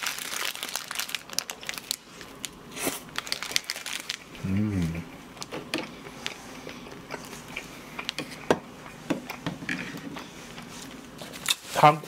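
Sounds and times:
person chewing toast: 5.4 - 11.6.

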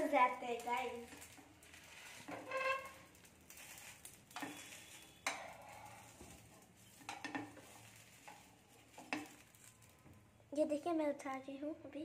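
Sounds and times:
crepe sizzling in a pan: 0.0 - 12.0
metal spoon scraping a pan: 1.0 - 9.7.

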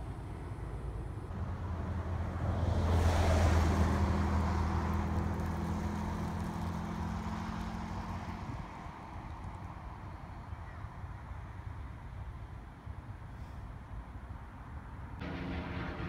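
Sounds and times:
pickup engine hum: 0.4 - 10.2, 15.2 - 16.0.

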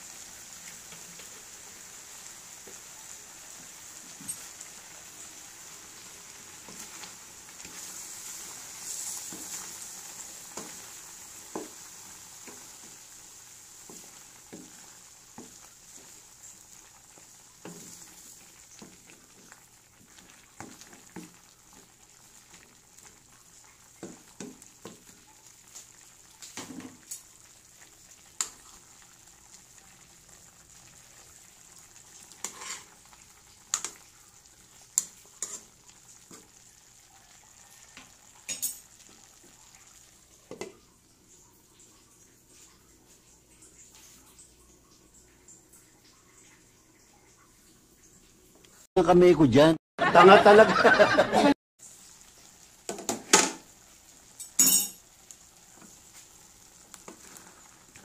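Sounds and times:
food sizzling in a wok: 0.0 - 44.6, 50.1 - 58.0
spatula scraping and knocking pan: 6.7 - 13.0, 13.8 - 16.2, 32.4 - 33.0, 35.0 - 35.7.

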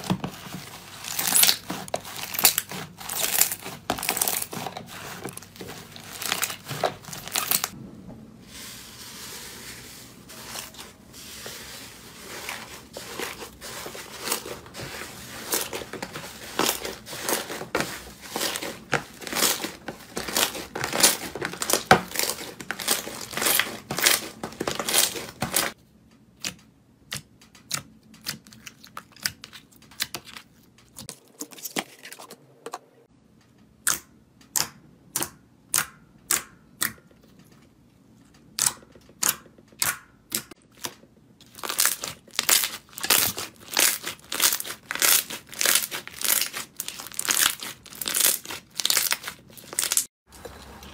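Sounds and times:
slime crackling and popping: 0.9 - 4.8, 6.0 - 7.8, 38.6 - 50.1.

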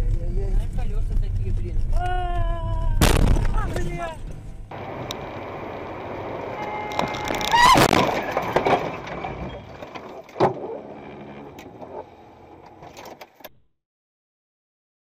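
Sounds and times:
road noise: 0.0 - 13.5
sharp bang: 3.0 - 3.9
car crash: 3.0 - 10.7.

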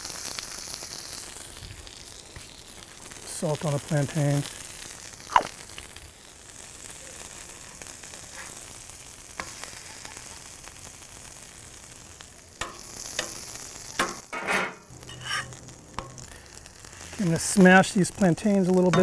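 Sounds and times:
food sizzling on griddle: 0.0 - 19.0
metal spatula scraping plate: 14.3 - 15.6.

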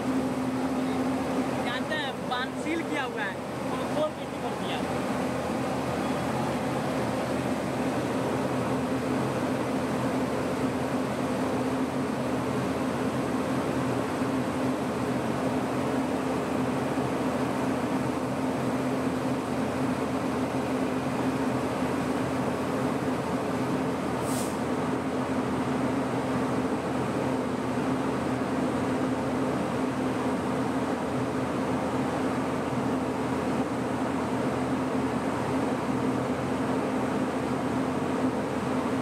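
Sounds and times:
train mechanical hum: 0.0 - 39.0
short hiss: 24.2 - 24.6.

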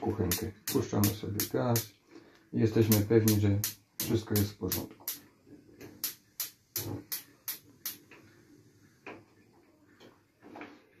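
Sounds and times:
spark igniter ticking: 0.0 - 1.9, 2.8 - 5.3, 5.9 - 8.2.

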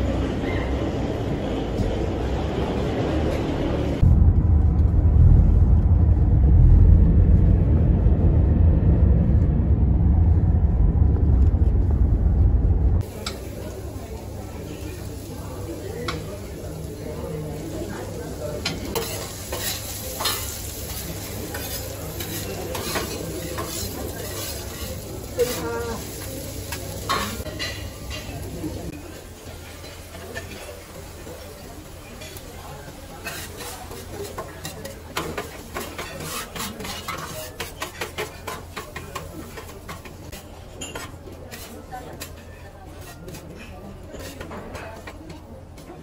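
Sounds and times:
vegetables sizzling: 13.0 - 40.3
metal spatula scraping griddle: 18.6 - 26.2, 33.2 - 45.3.

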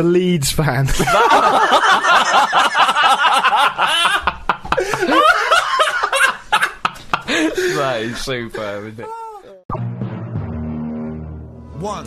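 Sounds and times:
men laughing together: 0.9 - 9.6.

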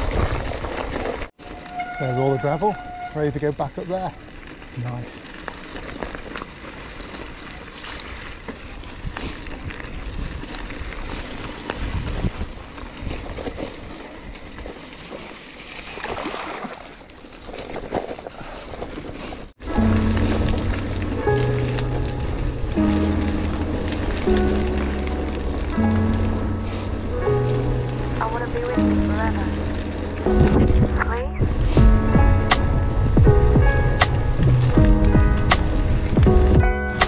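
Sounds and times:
bike tyres crunching on gravel: 0.0 - 37.0
wind buffeting microphone: 8.7 - 14.8, 25.5 - 36.8
held music chords: 19.6 - 37.0.

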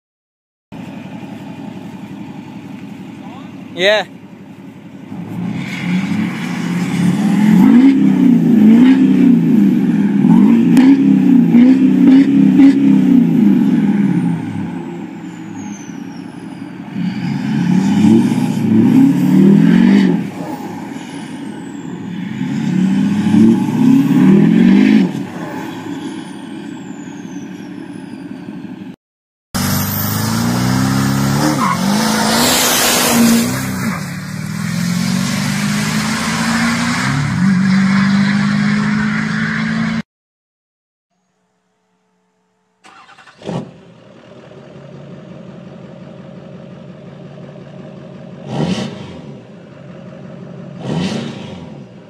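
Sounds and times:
pickup accelerating away: 0.8 - 27.8, 29.6 - 40.0
diesel engine revving: 5.0 - 29.0, 29.6 - 40.0, 42.8 - 52.0.

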